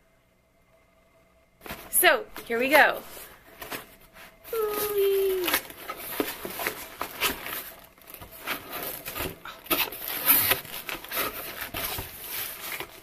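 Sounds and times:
plastic wrapping crinkling: 0:03.5 - 0:13.0
person humming: 0:04.5 - 0:05.7.

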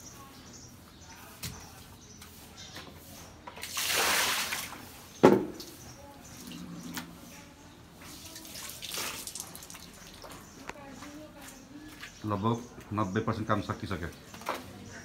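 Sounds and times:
water splashing on concrete: 0:03.6 - 0:05.7, 0:08.2 - 0:10.4
water dripping: 0:08.3 - 0:10.4.

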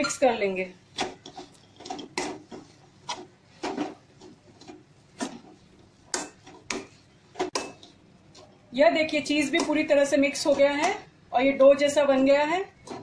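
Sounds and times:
spoon scraping dough in a pan: 0:00.9 - 0:11.1.

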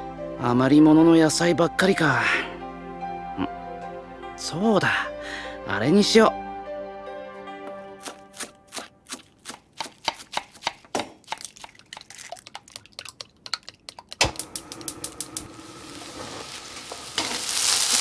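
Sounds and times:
knife chopping on cutting board: 0:08.0 - 0:11.8
pan sizzling: 0:08.0 - 0:18.0.

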